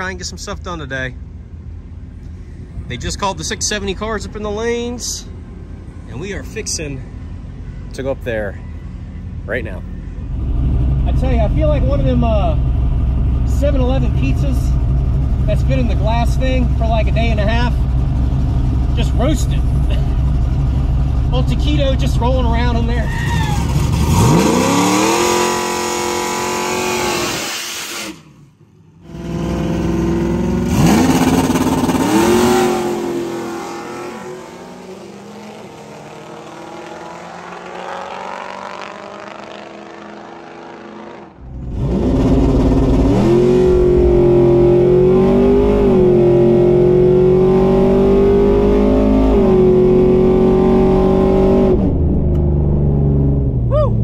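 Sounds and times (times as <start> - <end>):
truck engine revving hard: 23.2 - 28.3, 29.0 - 51.9.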